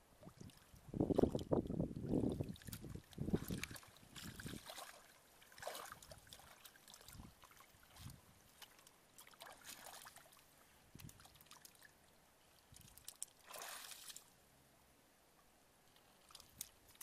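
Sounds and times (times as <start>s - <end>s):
water drips: 0.2s - 12.0s
hands splashing in water: 2.4s - 7.2s, 12.9s - 14.3s.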